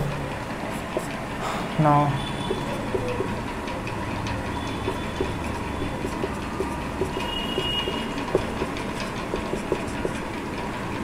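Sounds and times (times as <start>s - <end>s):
marker squeaking: 2.1s - 10.3s
marker tip tapping whiteboard: 4.8s - 5.4s, 6.0s - 10.2s.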